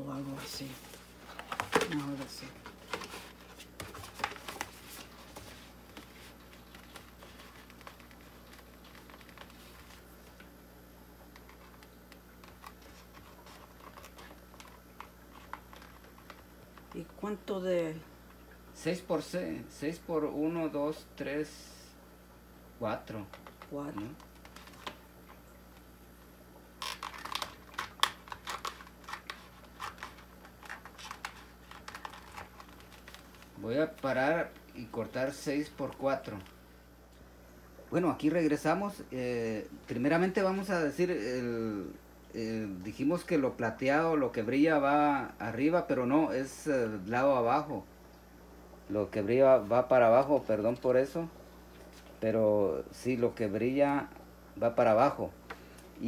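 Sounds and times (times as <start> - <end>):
plastic sheet crackling: 0.1 - 10.6, 11.3 - 17.3, 23.1 - 25.9, 26.7 - 36.6.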